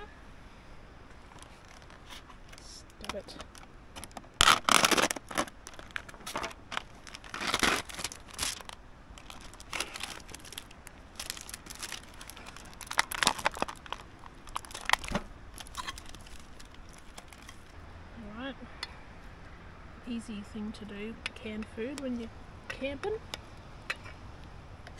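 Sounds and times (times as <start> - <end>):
food packaging crinkling and tearing: 1.3 - 17.7.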